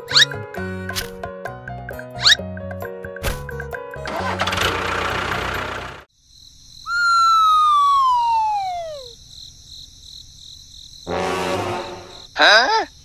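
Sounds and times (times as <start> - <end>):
engine-like running noise: 4.0 - 6.1
long falling whistle: 6.9 - 9.1.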